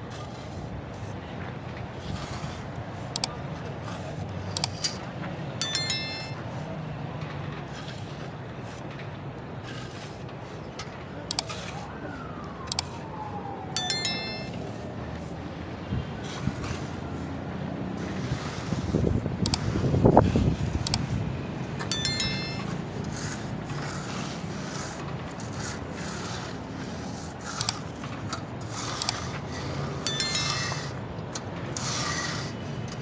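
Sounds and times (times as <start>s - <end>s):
ringing metal clinks: 5.6s - 6.5s, 13.8s - 14.6s, 21.9s - 22.8s, 30.1s - 31.0s.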